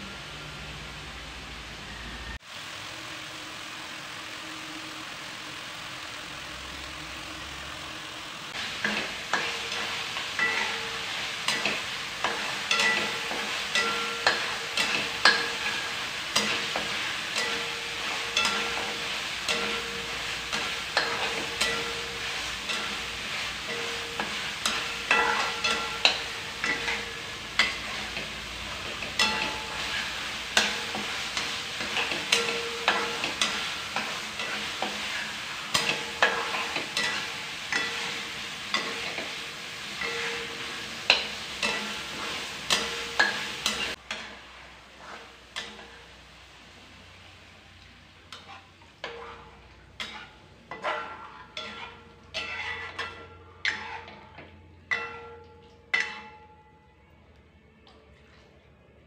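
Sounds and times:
paste sizzling in oil: 1.9 - 54.3
spatula scraping a wok: 8.5 - 46.2, 48.3 - 55.1.

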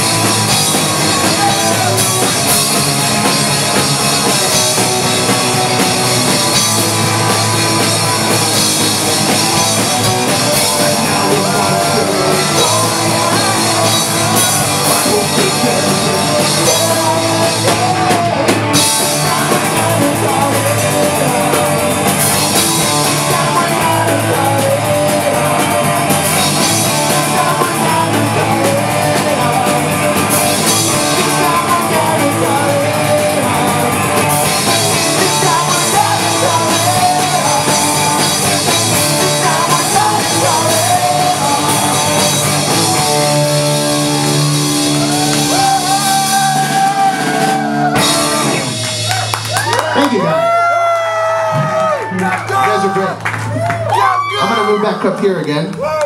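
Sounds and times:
drum kit with cymbals: 0.0 - 50.4
electric guitar: 0.0 - 55.5
person singing: 0.9 - 2.8, 10.4 - 48.7.

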